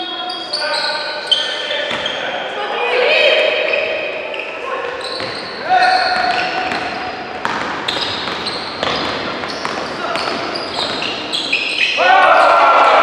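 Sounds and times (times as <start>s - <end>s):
sneakers squeaking: 0.0s - 12.6s
people calling out: 2.4s - 6.6s
basketball bouncing: 5.2s - 5.4s, 6.1s - 11.3s.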